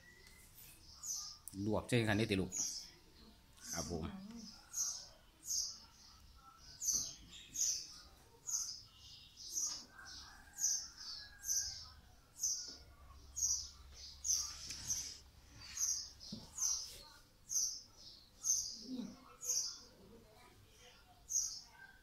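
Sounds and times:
small bird chirping: 0.0 - 20.0, 20.8 - 22.0.

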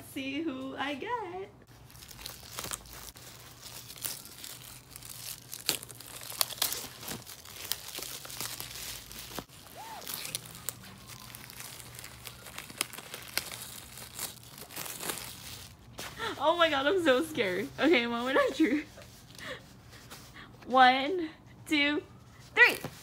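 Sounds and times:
plastic shrink wrap crinkling: 1.7 - 19.3.

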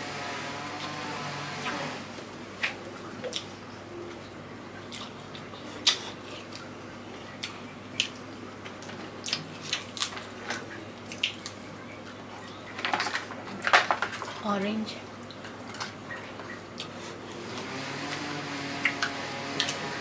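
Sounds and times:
wet chewing: 4.8 - 11.7.

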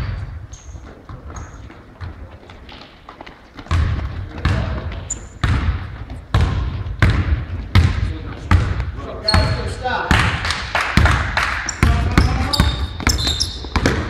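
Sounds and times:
basketball bouncing on court: 0.0 - 14.0
shoe squeak: 0.4 - 1.9, 5.0 - 5.4, 9.2 - 9.8, 11.7 - 14.0.

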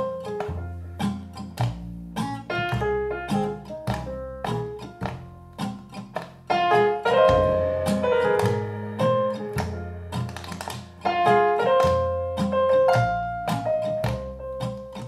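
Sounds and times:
struck pitched notes melody: 6.5 - 14.6.

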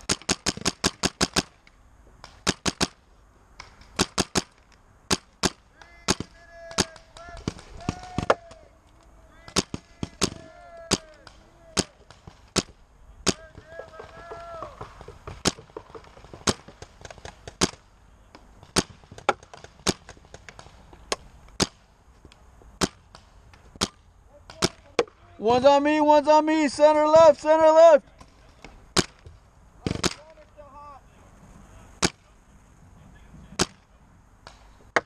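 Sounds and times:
paintball markers firing: 0.0 - 3.0, 3.6 - 25.2, 33.6 - 35.0.

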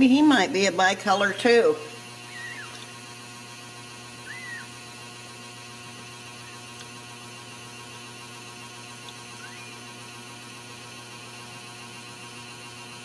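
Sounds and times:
steady electrical hum: 0.0 - 13.0
kitten squeaking: 4.3 - 4.7.

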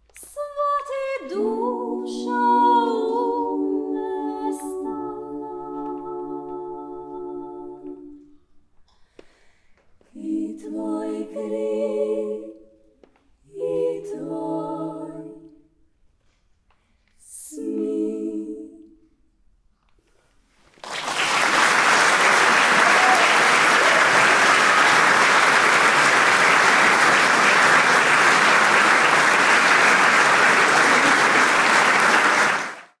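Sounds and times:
women singing a cappella: 0.2 - 8.4, 10.1 - 15.6, 17.2 - 19.2
audience applauding: 20.8 - 33.0.

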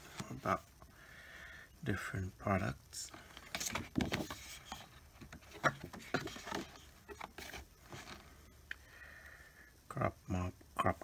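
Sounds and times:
paper brochure rustling: 3.0 - 8.4.

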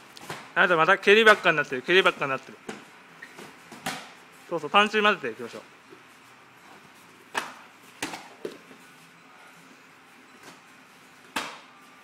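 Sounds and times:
gloved punches and kicks smacking: 11.3 - 11.7.

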